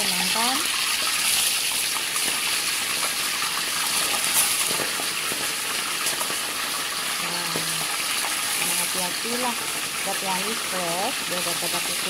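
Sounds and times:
chicken frying in hot oil: 0.0s - 12.0s.

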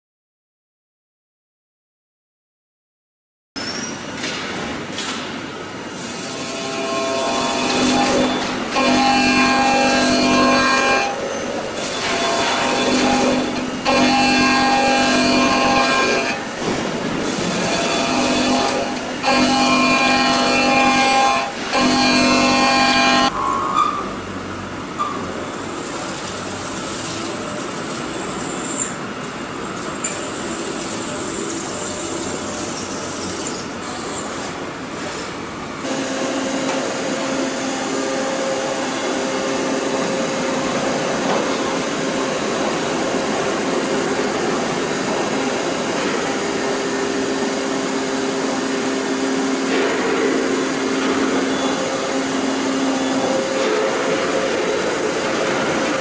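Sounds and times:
milling machine hum with tone: 5.6s - 56.0s
machine drilling hiss and hum: 5.8s - 23.3s.

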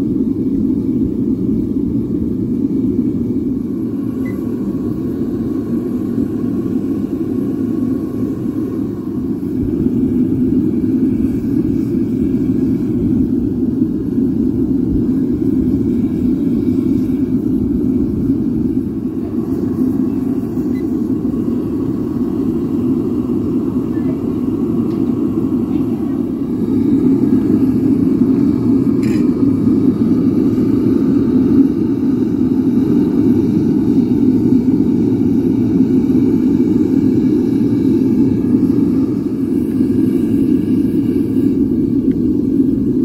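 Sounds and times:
gas burner roaring: 0.0s - 43.0s.

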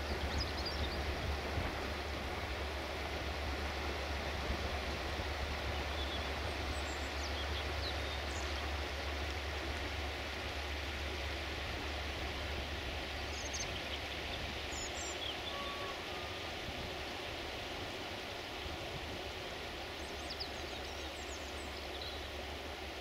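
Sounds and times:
river rushing over stones: 0.0s - 23.0s
faint bird chirps: 14.7s - 16.4s.

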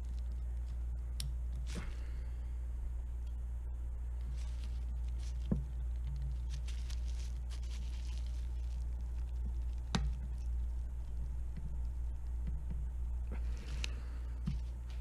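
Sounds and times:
steady low hum: 0.0s - 15.0s
hands rustling: 4.2s - 15.0s.

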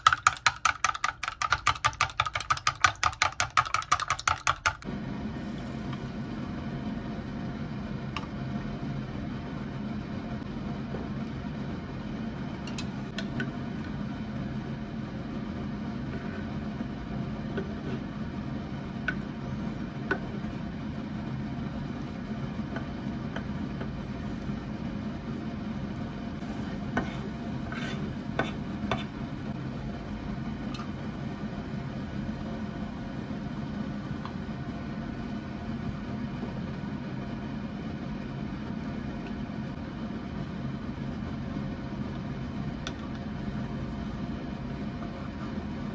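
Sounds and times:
turner clicking and scraping on pan: 0.0s - 4.8s
steady low hum: 0.0s - 45.9s.

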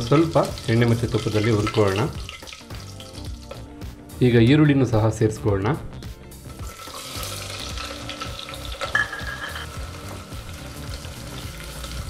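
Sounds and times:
onions sizzling in hot oil: 0.0s - 3.6s, 6.6s - 12.0s.

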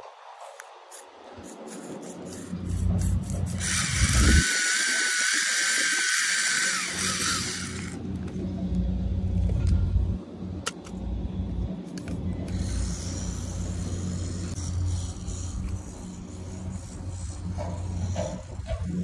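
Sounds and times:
electric motor whine: 2.3s - 9.6s
low rumble: 7.0s - 17.6s.

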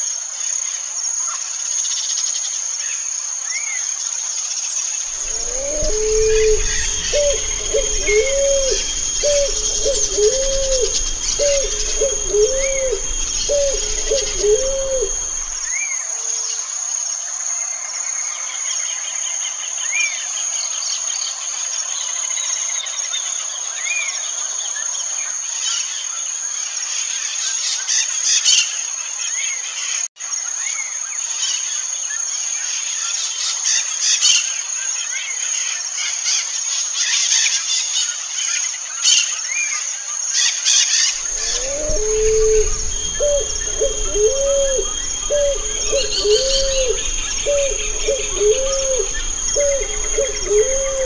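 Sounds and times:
dove cooing: 5.1s - 15.7s, 41.2s - 51.0s
low rumble: 5.1s - 15.7s, 41.2s - 51.0s
small bird chirping: 5.1s - 15.7s, 41.2s - 51.0s
high insect drone: 5.1s - 15.8s, 41.2s - 51.0s.

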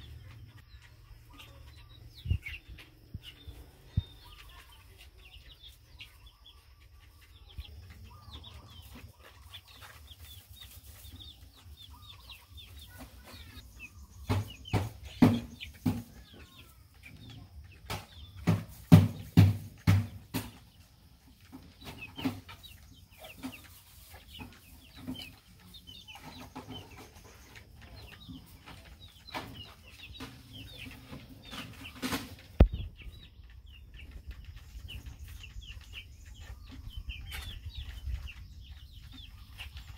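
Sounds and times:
chicks peeping: 0.0s - 39.9s.

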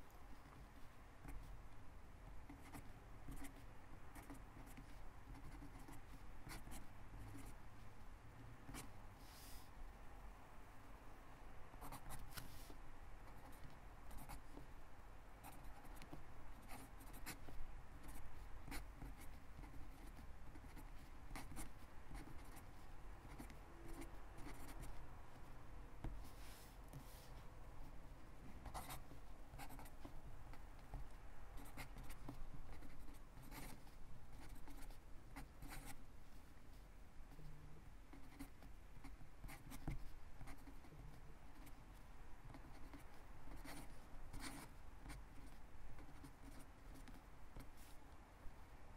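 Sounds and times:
felt tip pen writing on paper: 2.5s - 7.5s, 15.4s - 25.4s, 28.6s - 36.0s, 38.1s - 41.8s, 42.5s - 47.7s.

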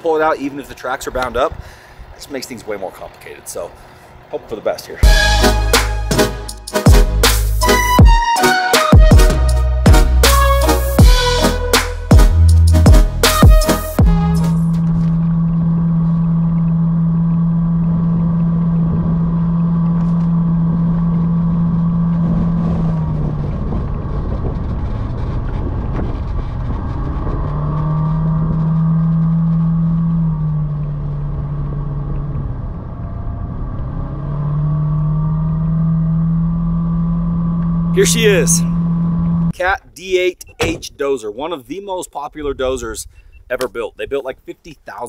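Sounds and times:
vehicle engine under load: 0.0s - 6.1s, 14.5s - 39.6s
road noise: 0.0s - 8.0s, 9.3s - 40.8s.

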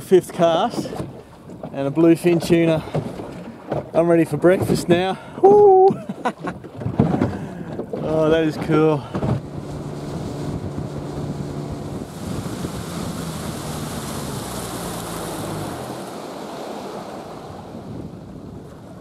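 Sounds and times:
rushing water: 0.0s - 19.0s
boat motor humming: 5.3s - 19.0s
rushing wind: 7.0s - 19.0s.

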